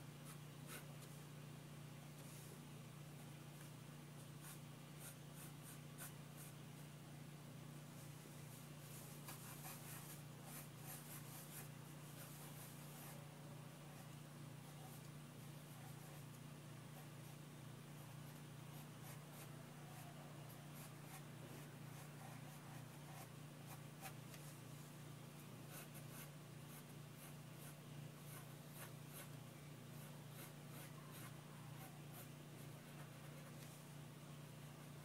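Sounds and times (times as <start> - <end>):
pencil scratching on paper: 0.2 - 0.9, 4.4 - 6.6, 8.9 - 13.2, 18.7 - 21.3, 21.9 - 24.5, 25.7 - 29.4, 30.0 - 33.6.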